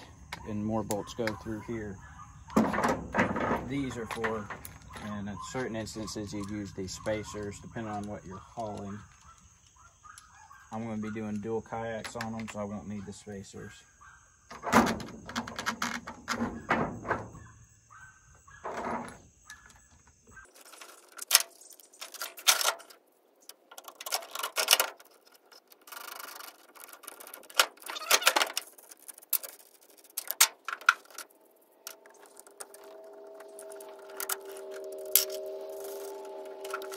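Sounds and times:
metal parts clinking: 20.5s - 36.9s.

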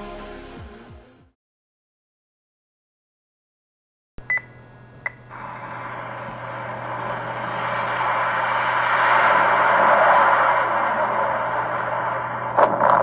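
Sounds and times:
jet engine rushing: 5.3s - 13.0s.

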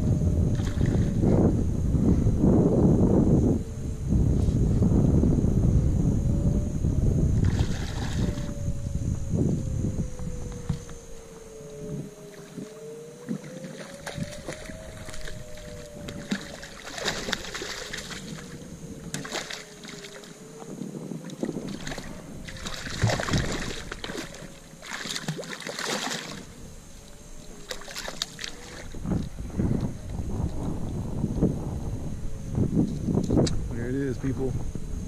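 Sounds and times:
faint wavering whine: 0.0s - 35.0s
fish splashing at water surface: 13.3s - 18.6s, 19.2s - 20.3s, 21.6s - 26.5s, 27.6s - 28.9s.

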